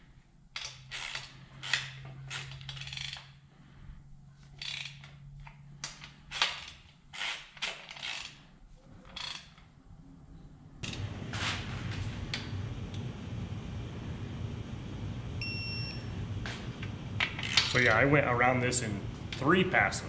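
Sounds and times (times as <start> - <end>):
ratchet wrench clicking: 0.6 - 3.3, 4.6 - 8.4, 9.2 - 9.6
low steady hum: 8.4 - 20.0.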